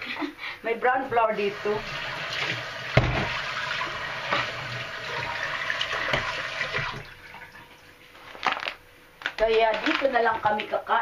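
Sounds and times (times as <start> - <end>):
tap water running into a sink: 1.4 - 8.0
water splashing: 1.5 - 8.0.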